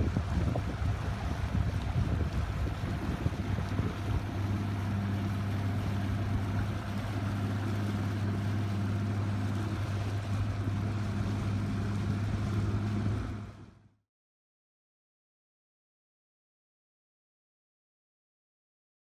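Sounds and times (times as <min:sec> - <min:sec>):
outboard motor humming: 0:00.0 - 0:14.0
wind and water noise: 0:00.0 - 0:14.0.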